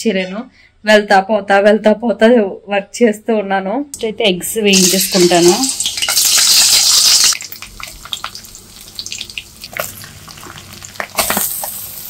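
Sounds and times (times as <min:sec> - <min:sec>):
eggs sizzling loudly in hot oil: 0:04.7 - 0:12.0
prawns frying with pops and crackles: 0:04.7 - 0:12.0.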